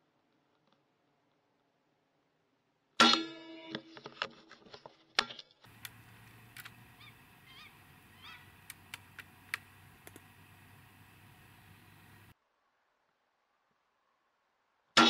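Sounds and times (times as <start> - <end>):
sharp metallic clicks: 5.7 - 12.3
distant rising and falling calls: 5.7 - 12.4
faint hiss: 5.7 - 12.4.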